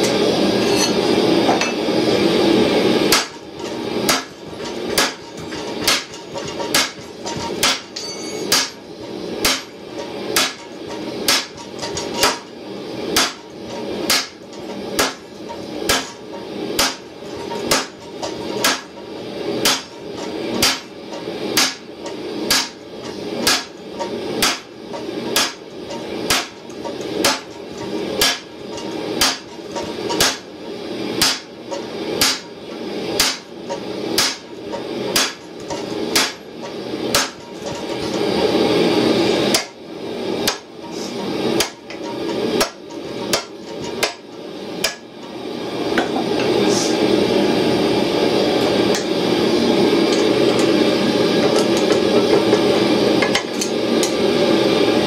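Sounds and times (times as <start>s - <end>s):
hammer striking metal on anvil: 0.6s - 1.8s, 3.1s - 12.5s, 13.1s - 19.0s, 19.6s - 30.5s, 31.2s - 32.6s, 33.2s - 38.2s, 39.4s - 39.8s, 40.4s - 41.0s, 41.6s - 45.1s.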